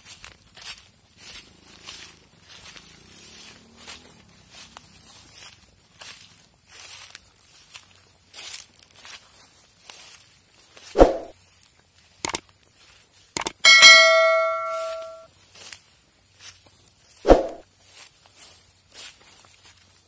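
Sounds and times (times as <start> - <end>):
sharp clicks: 13.4 - 13.6
bell-like metallic ring: 13.6 - 15.3.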